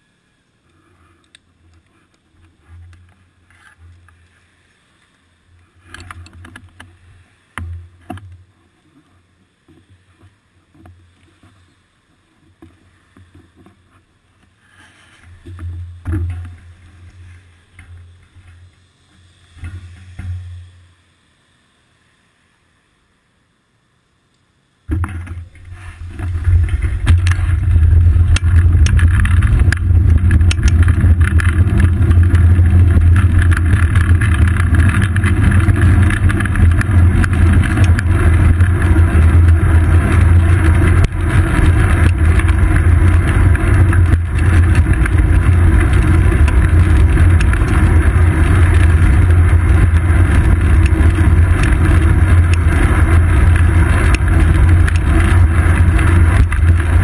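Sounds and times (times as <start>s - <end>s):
small clicks and rattles: 5.8s - 6.9s, 25.0s - 57.0s
wind buffeting and road rumble: 24.9s - 57.0s.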